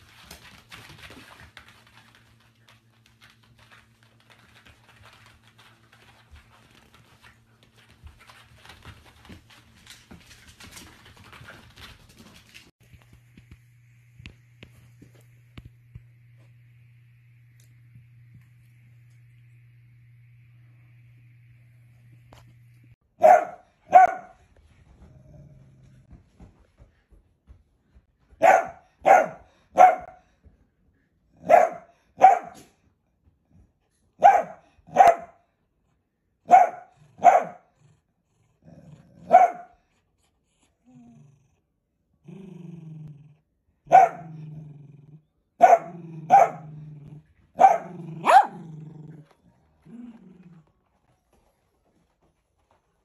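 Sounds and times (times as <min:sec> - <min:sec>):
dog barking: 0:23.2 - 0:24.4, 0:28.4 - 0:30.2, 0:31.4 - 0:32.7, 0:34.2 - 0:35.4, 0:36.5 - 0:37.7, 0:39.2 - 0:39.8, 0:43.9 - 0:44.4, 0:45.6 - 0:46.7, 0:47.6 - 0:48.7
dog growling: 0:25.0 - 0:26.1, 0:37.8 - 0:39.3, 0:40.8 - 0:43.5, 0:44.2 - 0:50.8.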